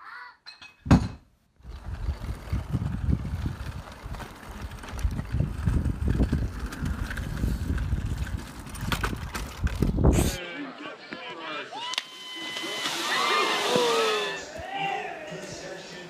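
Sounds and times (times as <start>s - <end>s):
bike wheels rolling on asphalt: 1.6s - 10.1s
plastic wheels rolling on asphalt: 1.6s - 10.1s
wind buffeting microphone: 1.6s - 10.4s.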